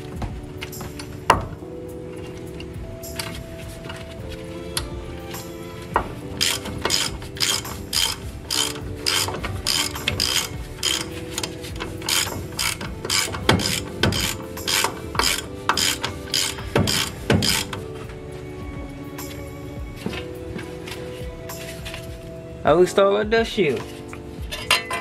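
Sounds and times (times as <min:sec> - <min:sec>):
hand ratchet clicking: 0:06.3 - 0:17.8.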